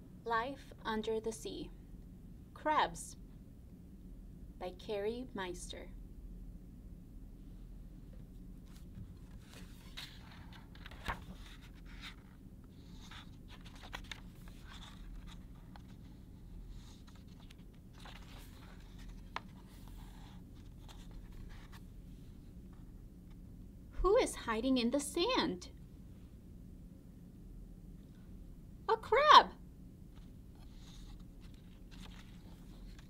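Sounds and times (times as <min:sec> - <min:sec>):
book pages turning: 0:08.6 - 0:21.9, 0:30.1 - 0:33.0.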